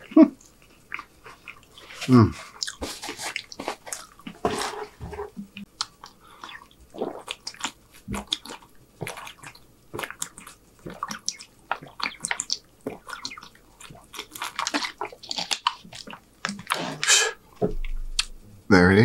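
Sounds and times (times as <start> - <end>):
person gulping water: 5.4 - 18.4.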